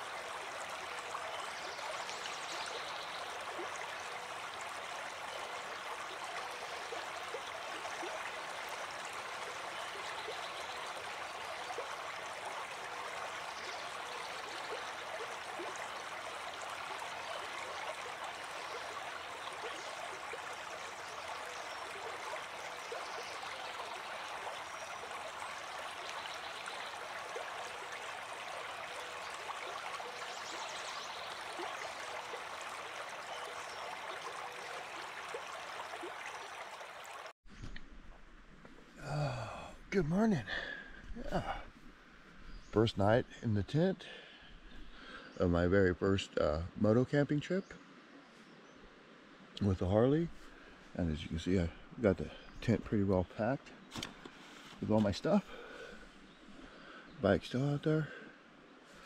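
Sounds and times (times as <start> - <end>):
brook flowing over gravel: 0.0 - 37.9, 38.6 - 58.3.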